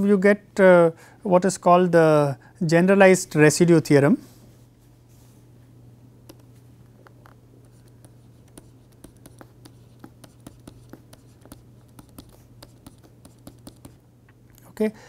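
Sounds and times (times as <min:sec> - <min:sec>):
steady low hum: 0:00.0 - 0:15.0
stylus tapping on pen tablet: 0:06.3 - 0:14.0.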